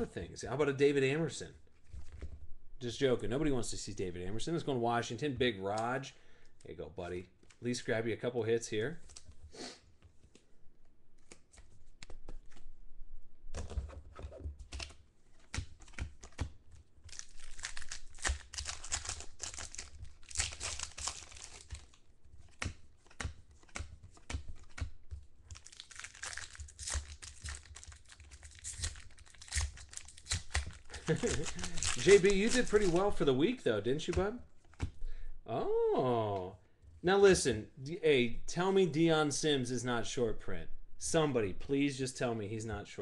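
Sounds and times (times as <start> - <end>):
plastic card sleeves crinkling: 13.6 - 35.0
foil wrapper crinkling and tearing: 17.0 - 24.8, 25.5 - 33.3.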